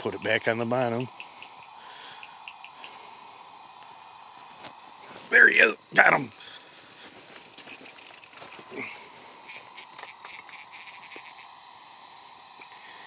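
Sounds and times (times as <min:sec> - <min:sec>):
light ticks and rustles: 0:06.3 - 0:08.8
fishing reel clicking: 0:09.4 - 0:11.5.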